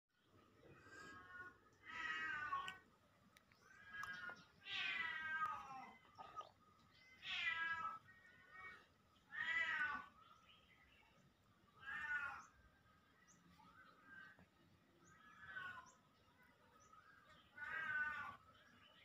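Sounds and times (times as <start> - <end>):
cat meowing: 11.8 - 12.5, 17.6 - 18.4.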